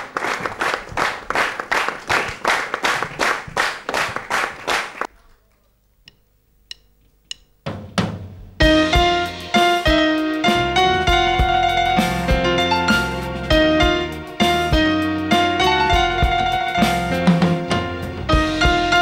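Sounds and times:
audience clapping in a steady beat: 0.0 - 5.1
keyboard music: 8.6 - 19.0.

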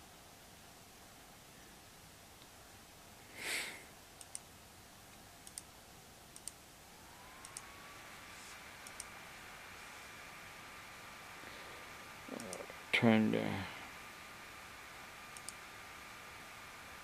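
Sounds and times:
faint steady whine: 0.0 - 17.0
computer mouse clicks: 4.2 - 4.5, 5.4 - 5.7, 6.3 - 6.6, 7.4 - 7.7, 8.8 - 9.1, 12.3 - 12.7, 15.3 - 15.6.

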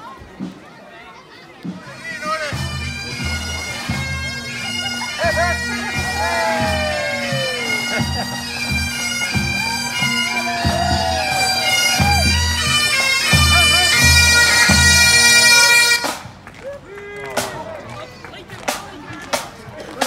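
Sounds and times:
bagpipes playing a tune: 1.8 - 16.2
low drum beat: 5.3 - 12.6.

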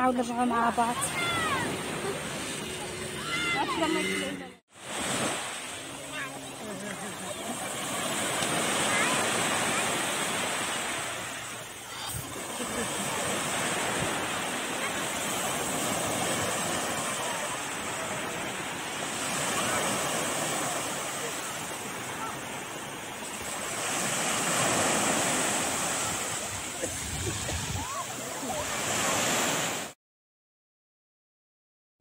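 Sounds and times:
waves washing on pebble beach: 4.8 - 29.9.

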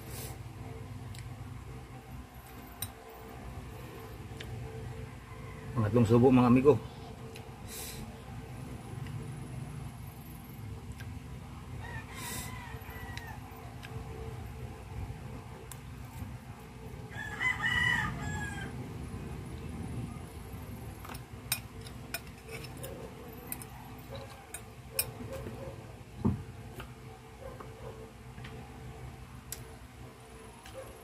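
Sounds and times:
rooster crowing: 4.9 - 6.2, 11.8 - 13.7, 17.0 - 18.9.

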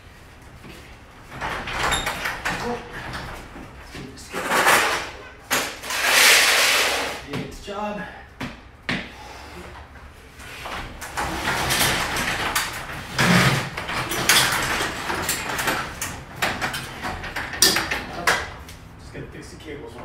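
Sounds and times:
garage door rolling up: 0.0 - 7.3, 9.7 - 19.2.

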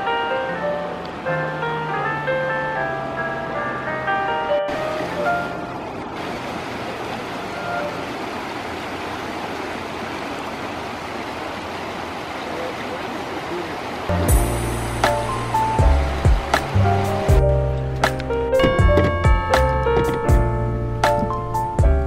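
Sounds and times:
background music: 0.0 - 6.0, 14.1 - 22.0
river rushing over rapids: 4.7 - 14.1.

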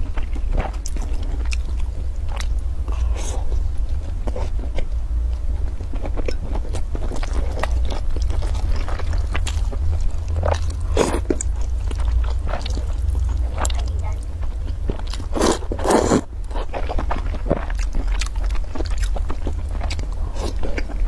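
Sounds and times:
steady low hum: 0.0 - 21.0
wet chewing: 5.9 - 21.0.

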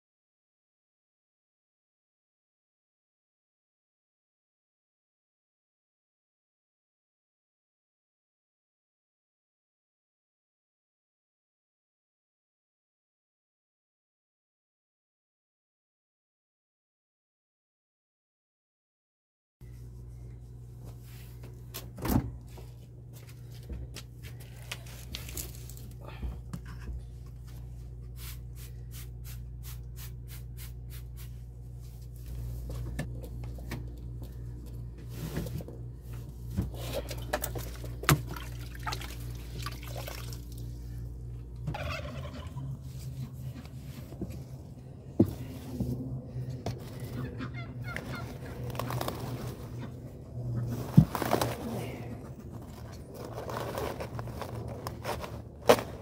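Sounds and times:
refrigerators humming: 19.7 - 56.0
turkeys gobbling: 41.7 - 43.3, 47.0 - 48.6.

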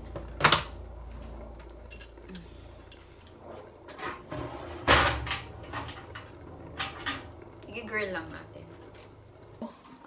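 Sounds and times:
metal tongs clattering: 1.9 - 3.4.

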